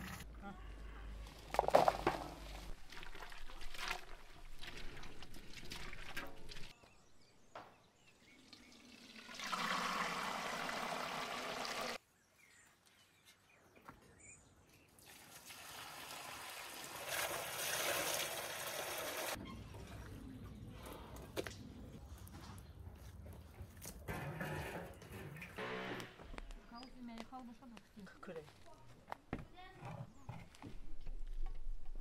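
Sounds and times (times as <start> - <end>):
liquid pouring into metal pots: 2.6 - 6.7, 8.5 - 12.0, 15.0 - 20.1.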